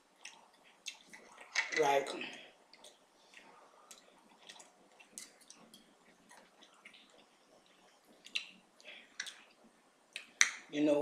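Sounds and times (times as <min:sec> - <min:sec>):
wet chewing: 0:00.2 - 0:01.6, 0:02.7 - 0:10.6.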